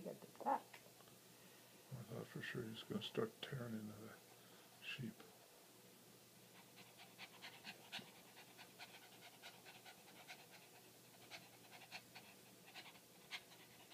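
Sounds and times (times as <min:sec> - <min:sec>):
small dog panting: 0:06.5 - 0:13.9.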